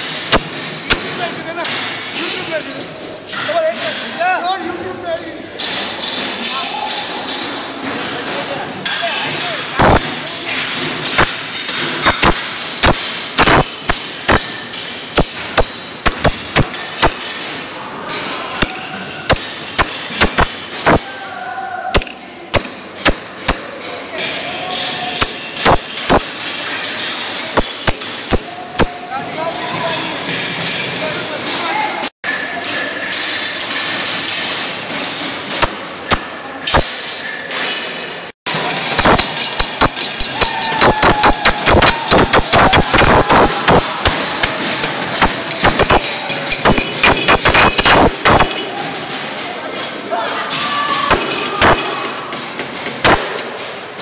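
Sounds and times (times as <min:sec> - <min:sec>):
workshop noise hiss: 0:00.0 - 0:54.0
hammer striking chisel on metal: 0:08.8 - 0:17.5, 0:18.6 - 0:21.1, 0:22.0 - 0:29.1, 0:35.5 - 0:37.0, 0:38.8 - 0:48.8
hammer blows on metal: 0:39.0 - 0:44.6.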